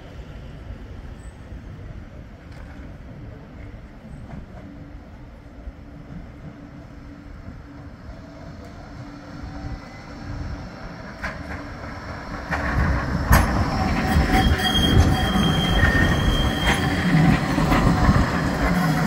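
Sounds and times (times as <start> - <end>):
tram passing rumble: 0.0 - 19.0
high steady squeal: 12.5 - 19.0.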